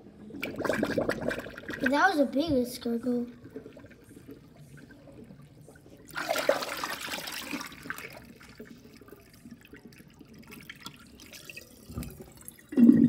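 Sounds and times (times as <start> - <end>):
water gurgling down drain: 0.0 - 2.0, 3.3 - 13.0
water trickling: 0.3 - 13.0.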